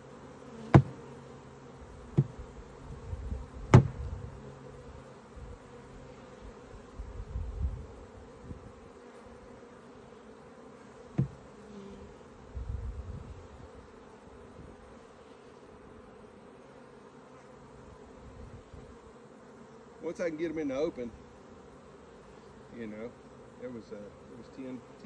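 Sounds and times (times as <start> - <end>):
honeybees buzzing: 0.0 - 25.0
sharp knock: 0.7 - 1.0, 3.7 - 4.0.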